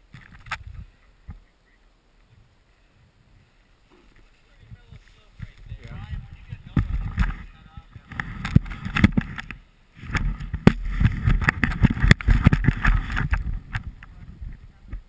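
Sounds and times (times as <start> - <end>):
wind buffeting microphone: 0.0 - 1.5, 2.3 - 15.0
snowboard gear knocking and scuffing: 6.7 - 14.0.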